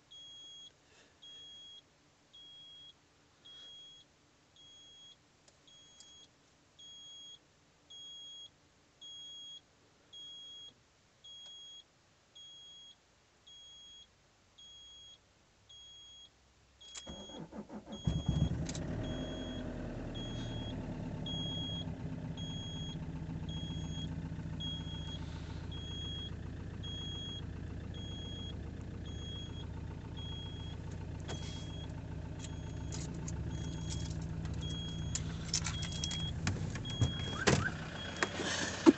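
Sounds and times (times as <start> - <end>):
dashboard warning chime beeping: 17.0 - 38.5
diesel engine cranking: 17.0 - 38.9
diesel engine idling: 17.1 - 38.9.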